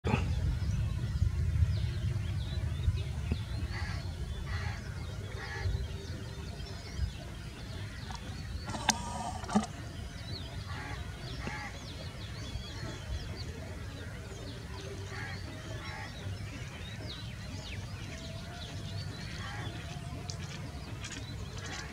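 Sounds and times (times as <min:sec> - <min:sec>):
steady low rumble: 0:00.1 - 0:05.2
birds chirping and whistling: 0:00.1 - 0:21.9.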